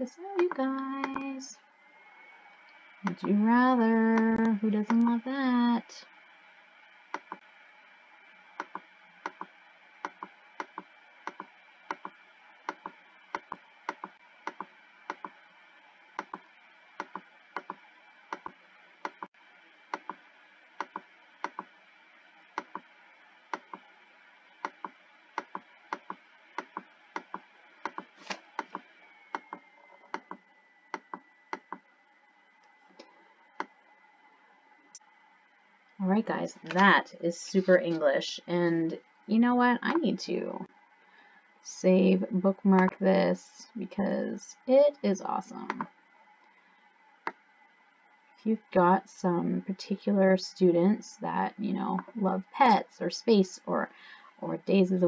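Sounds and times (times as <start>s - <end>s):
faint high whine: 0.0s - 55.0s
computer mouse clicking: 2.7s - 3.4s, 7.1s - 7.4s, 8.6s - 15.4s, 16.2s - 19.3s, 19.9s - 20.2s, 20.8s - 21.7s, 22.6s - 22.9s, 23.5s - 23.9s, 24.6s - 31.8s.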